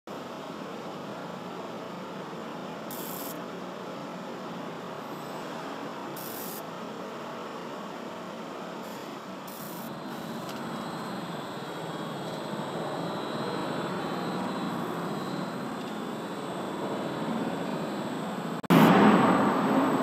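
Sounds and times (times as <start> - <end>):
production line machinery noise: 8.8 - 20.0
loud rush of noise: 12.0 - 20.0.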